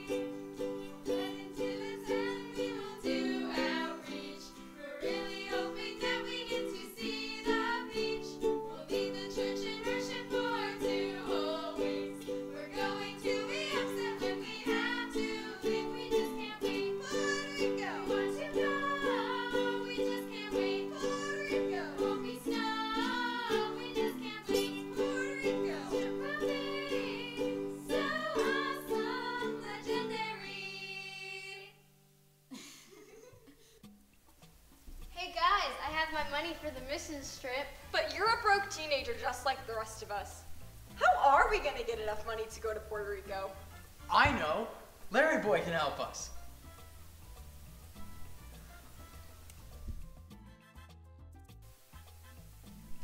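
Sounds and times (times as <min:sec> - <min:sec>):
ukulele: 0:00.0 - 0:31.6, 0:38.0 - 0:43.3, 0:44.1 - 0:50.9
young voices singing: 0:00.0 - 0:31.8.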